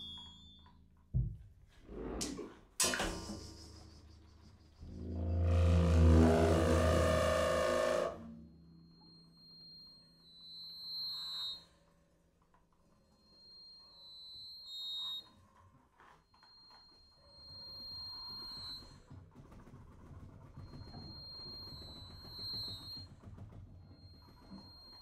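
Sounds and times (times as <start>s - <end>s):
low rumbling texture: 4.7s - 7.8s.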